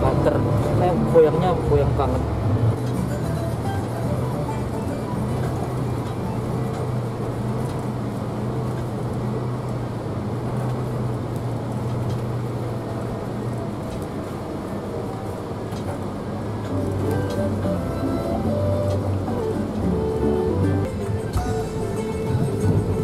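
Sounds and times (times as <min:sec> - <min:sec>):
coach engine hum: 0:00.0 - 0:23.0
road noise: 0:00.0 - 0:23.0.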